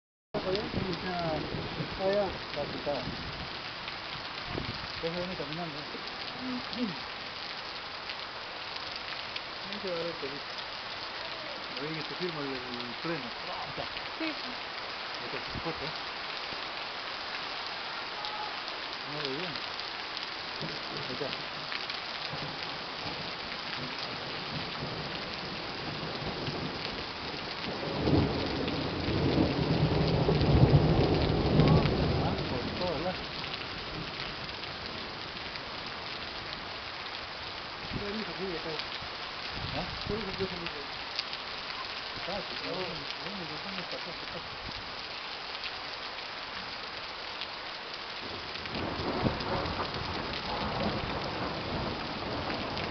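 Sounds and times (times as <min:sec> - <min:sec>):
heavy rain falling: 0:00.4 - 0:52.9
thunder rumbling: 0:22.3 - 0:35.1, 0:48.3 - 0:52.9.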